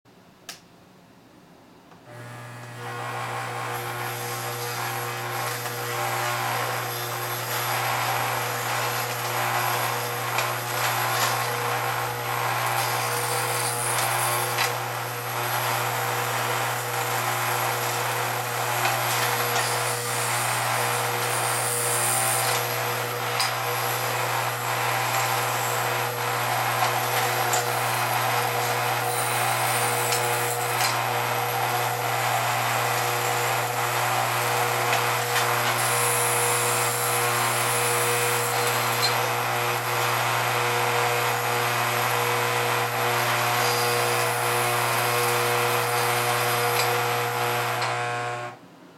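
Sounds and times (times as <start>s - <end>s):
electric hum: 2.0s - 18.8s
buzzing rattle of conveyor: 2.1s - 48.4s.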